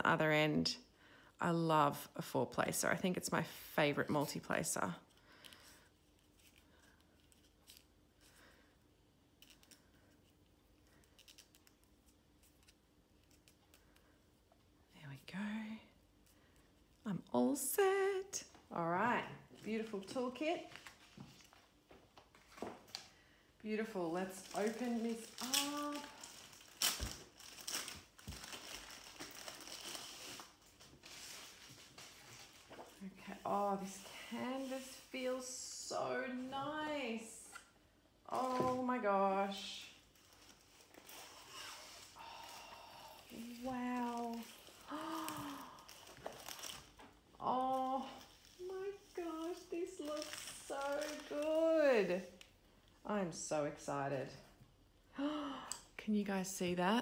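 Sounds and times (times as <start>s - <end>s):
plastic packaging crinkling: 24.0s - 33.1s, 39.9s - 42.2s, 43.3s - 52.5s.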